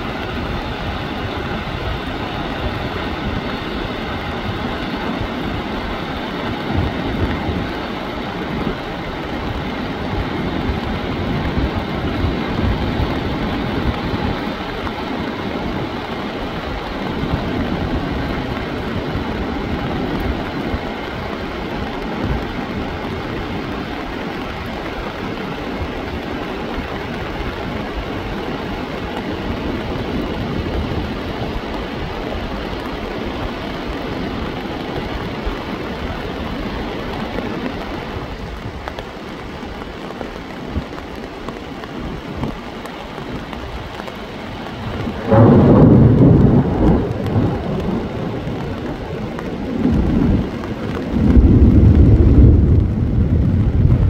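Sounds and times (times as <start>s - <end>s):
rushing flood torrent: 0.0s - 54.0s
loud low rumbles: 44.9s - 54.0s.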